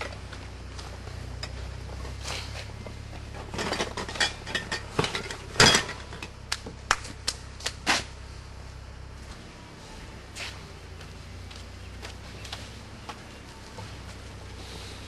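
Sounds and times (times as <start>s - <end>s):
beer cans clattering and clinking: 3.4s - 6.2s.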